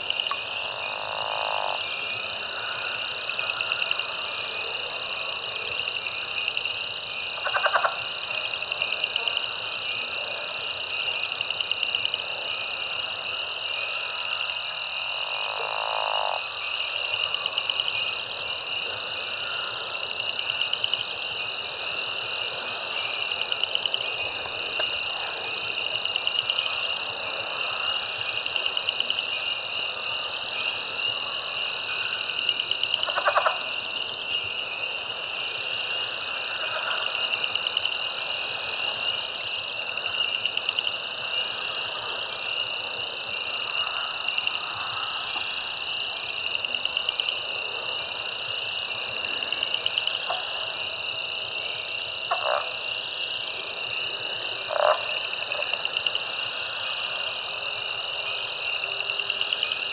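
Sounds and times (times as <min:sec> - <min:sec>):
frog chorus peeps and trills: 0:00.0 - 0:59.9
lower frog call: 0:07.4 - 0:08.0.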